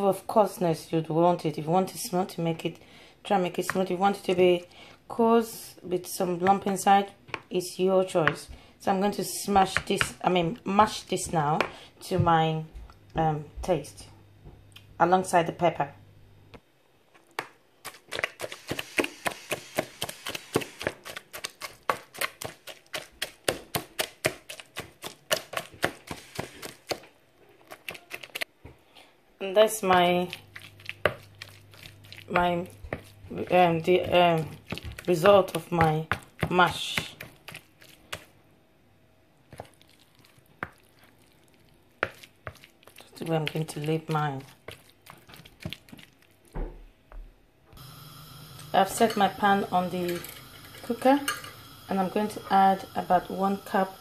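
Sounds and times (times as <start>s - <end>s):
wooden pestle pounding in plastic bowl: 17.9s - 27.0s, 32.3s - 38.2s.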